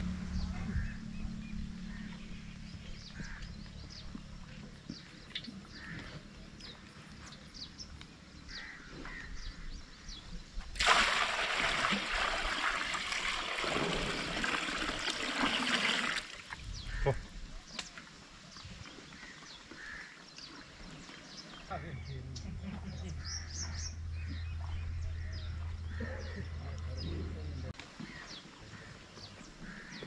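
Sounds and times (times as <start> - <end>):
water pouring into metal bowl: 10.8 - 16.6.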